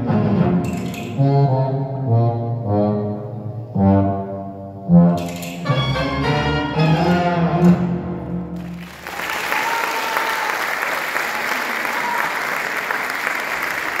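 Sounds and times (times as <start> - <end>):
audience applauding: 8.6 - 14.0.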